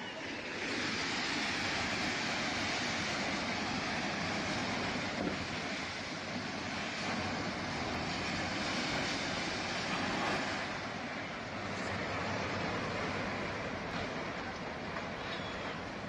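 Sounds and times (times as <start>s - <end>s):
rushing flood water: 0.0s - 16.0s.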